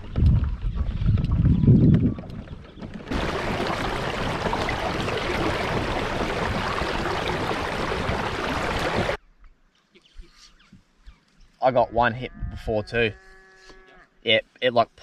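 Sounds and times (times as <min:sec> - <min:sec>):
wind on microphone: 0:00.0 - 0:09.2.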